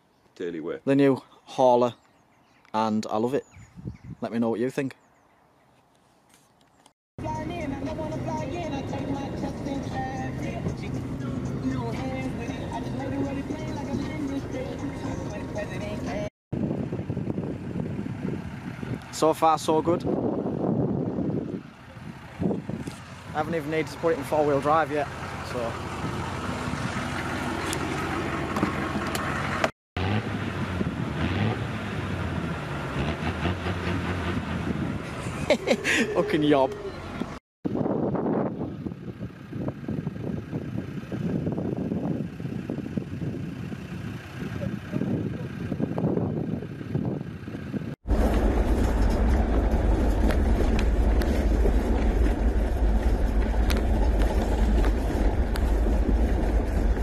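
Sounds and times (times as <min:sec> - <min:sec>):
wind and road noise: 0:00.0 - 0:57.0
pickup engine hum: 0:07.2 - 0:19.2, 0:20.0 - 0:57.0
vehicle driving on gravel: 0:16.8 - 0:37.4, 0:39.2 - 0:57.0.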